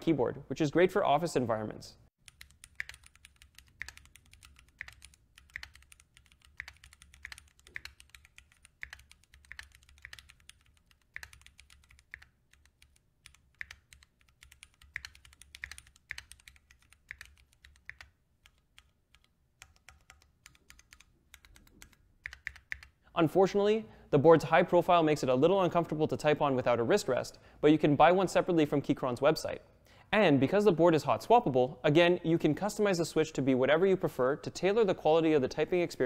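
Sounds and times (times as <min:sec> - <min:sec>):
soft keyboard typing: 0:02.2 - 0:23.0.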